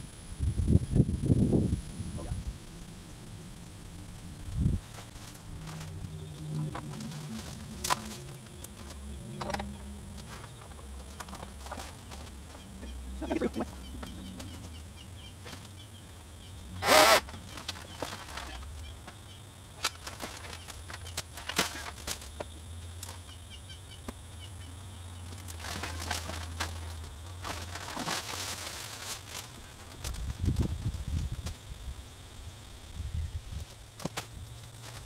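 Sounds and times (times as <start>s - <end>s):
steady low hum: 0.0s - 35.0s
tree branches rustling and snapping: 4.5s - 6.1s, 6.7s - 12.6s, 16.8s - 23.2s, 25.2s - 31.6s.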